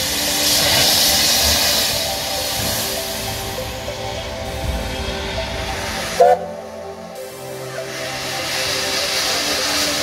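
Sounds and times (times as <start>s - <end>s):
steady background tones and hiss: 0.0s - 10.0s
steam whistle peep: 5.9s - 6.6s.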